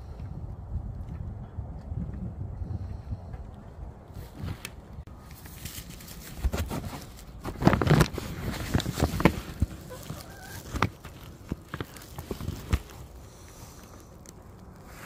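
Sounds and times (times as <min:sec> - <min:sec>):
knocks and rustles: 0:04.2 - 0:13.1
chickens clucking: 0:09.8 - 0:10.7.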